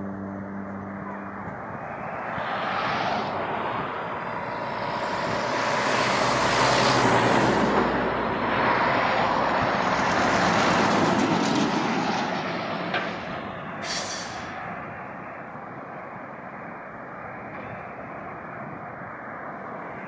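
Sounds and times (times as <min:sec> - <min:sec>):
heavy trucks passing: 0:00.0 - 0:15.9.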